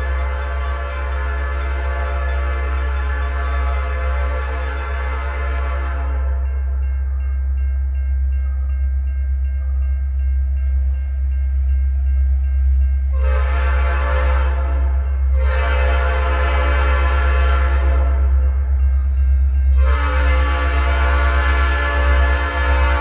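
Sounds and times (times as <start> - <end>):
locomotive air horn blasts: 0.0 - 6.4, 13.1 - 18.6, 19.7 - 23.0.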